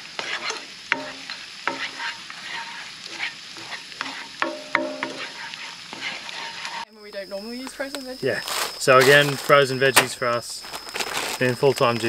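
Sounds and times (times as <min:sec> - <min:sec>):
spatula scraping pan: 0:00.0 - 0:06.9
garlic and onion sizzling: 0:00.0 - 0:12.0.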